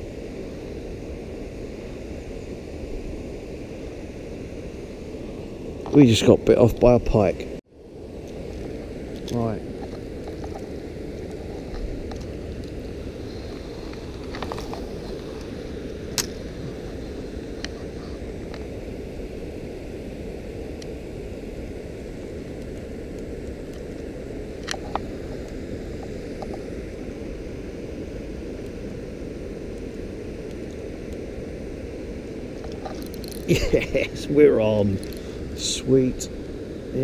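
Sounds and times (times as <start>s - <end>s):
fishing reel clicks: 33.0s - 33.5s.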